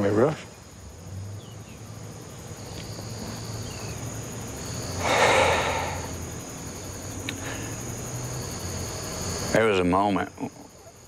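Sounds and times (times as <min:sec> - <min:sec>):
crickets chirring: 0:00.0 - 0:11.0
man breathing heavily: 0:05.0 - 0:06.2.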